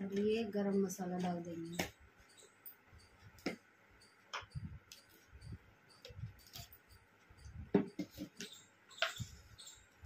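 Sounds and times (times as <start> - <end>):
plastic spoon tapping steel bowl: 7.7 - 9.2.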